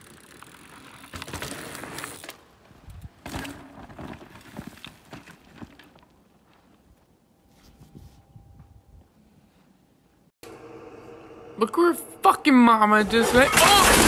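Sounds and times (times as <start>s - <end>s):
bike tyres on loose dirt: 0.0s - 7.1s
knocks and scrapes in dirt: 0.0s - 8.2s.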